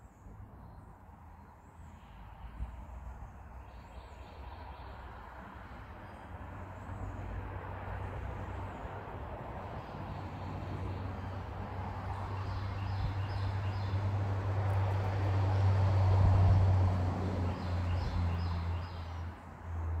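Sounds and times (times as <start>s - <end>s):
passing vehicle engine hum: 1.9s - 20.0s.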